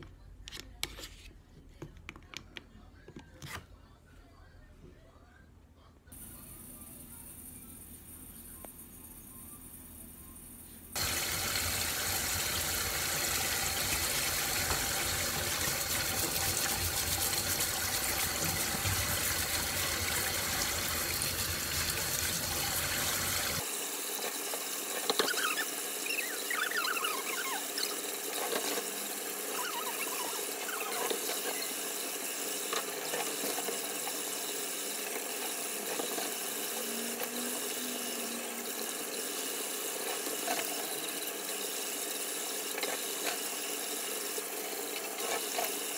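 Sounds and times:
tap spraying water into metal bowl: 11.0s - 23.6s.

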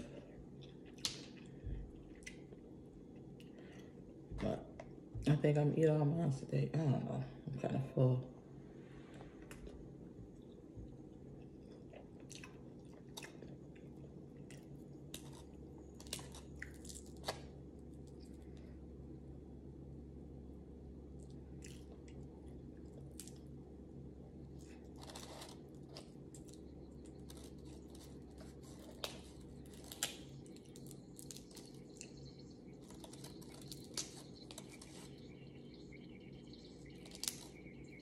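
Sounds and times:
steady low hum: 0.0s - 38.0s
chewing: 9.1s - 18.4s, 21.2s - 23.4s, 24.5s - 35.3s
ice maker whine: 18.4s - 38.0s.

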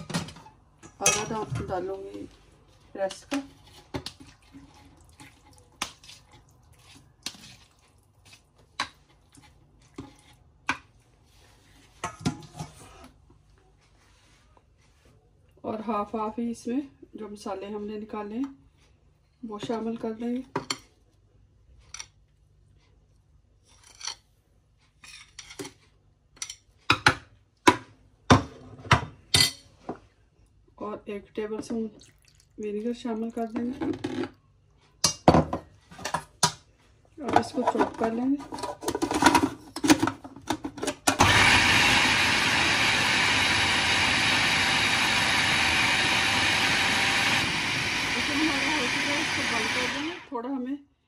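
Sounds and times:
electric food chopper running: 41.1s - 50.3s.

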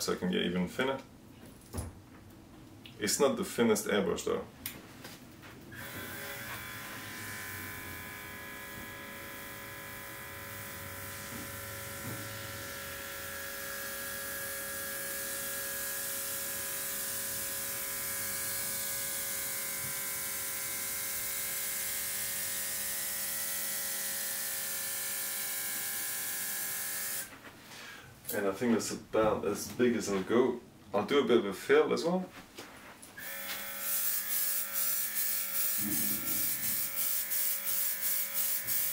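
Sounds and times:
airbrush compressor motor whine: 5.8s - 15.5s
air hissing: 35.8s - 36.9s.

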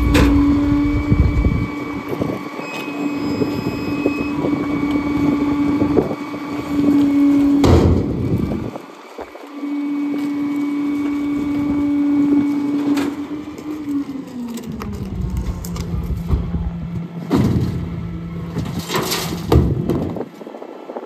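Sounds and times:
garbage truck engine hum: 0.0s - 21.0s
debris clattering into metal bin: 18.5s - 20.1s.

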